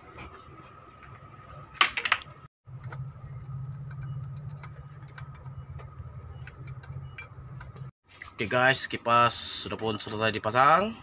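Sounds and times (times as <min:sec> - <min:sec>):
low hum: 0:02.7 - 0:07.9.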